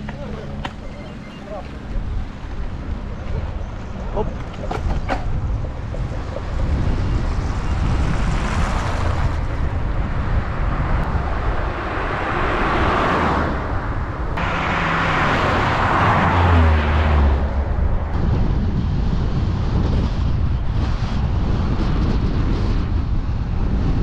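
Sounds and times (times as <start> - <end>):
road traffic passing: 0.0 - 21.4
low engine hum: 0.0 - 24.0
steady low rumble: 0.0 - 24.0.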